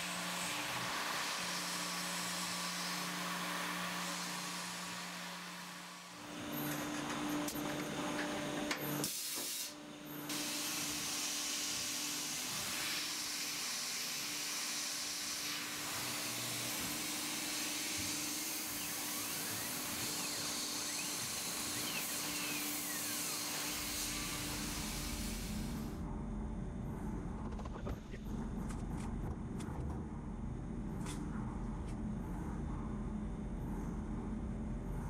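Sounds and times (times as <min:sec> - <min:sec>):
end mill cutting metal: 0:00.0 - 0:09.1, 0:10.3 - 0:25.9
air nozzle hissing: 0:09.0 - 0:26.0
spindle humming: 0:10.3 - 0:25.9.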